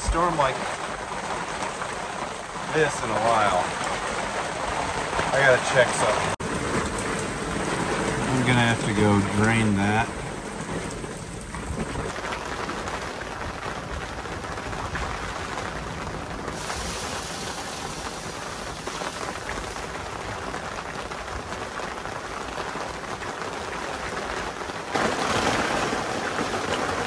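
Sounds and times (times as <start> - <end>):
heavy rain on fabric awning: 0.0 - 27.0.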